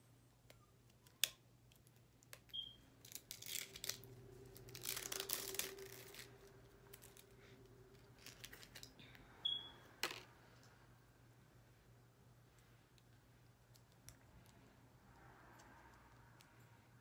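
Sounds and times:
plastic and paper crinkling: 0:03.0 - 0:08.9.

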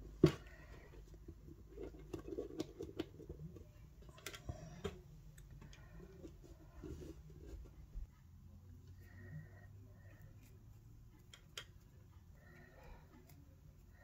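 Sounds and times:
small clicks and taps: 0:11.2 - 0:12.0.

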